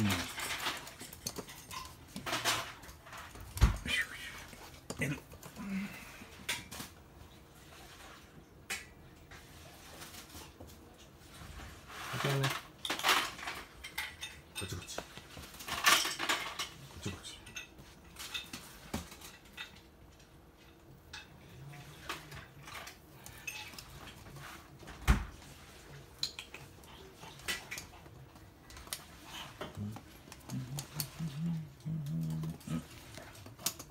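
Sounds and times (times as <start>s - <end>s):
scrape: 11.3s - 12.4s.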